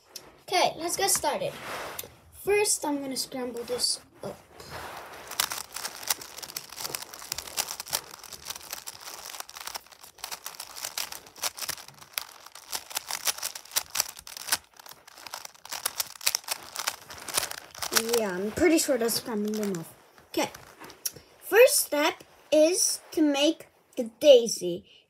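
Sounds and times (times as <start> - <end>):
puzzle cube layers clicking: 5.3 - 20.7.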